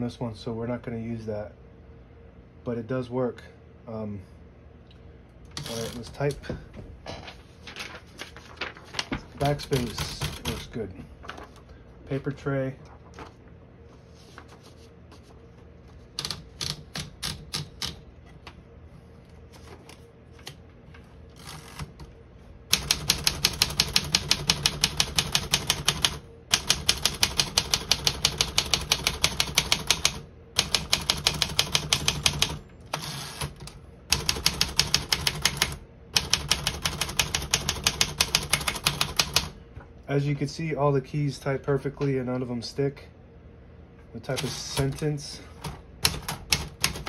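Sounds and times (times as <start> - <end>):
paper wound into typewriter: 5.6 - 6.0
manual typewriter typing: 5.6 - 6.4, 8.6 - 11.4, 16.1 - 18.0, 22.7 - 39.6, 44.3 - 47.0.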